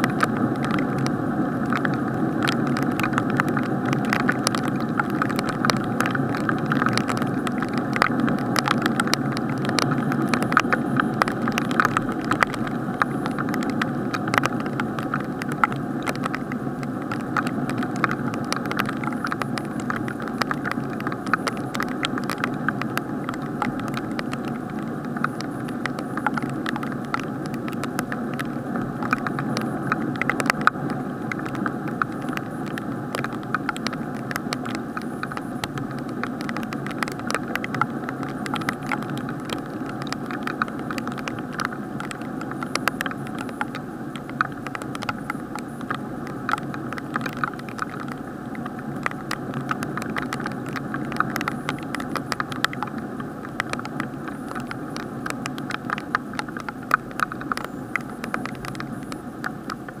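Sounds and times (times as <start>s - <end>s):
muffled rain rush: 0.0s - 60.0s
raindrops ticking on case: 0.0s - 60.0s.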